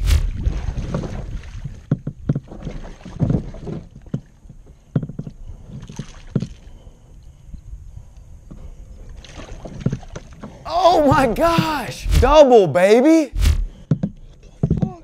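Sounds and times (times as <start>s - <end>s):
water and wind rumble: 0.0s - 12.5s.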